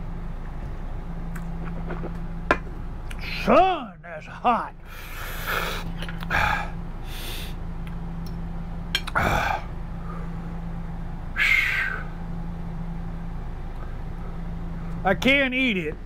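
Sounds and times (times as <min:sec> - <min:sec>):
steady low hum: 0:00.0 - 0:16.0
man huffing and blowing out air: 0:04.8 - 0:07.6.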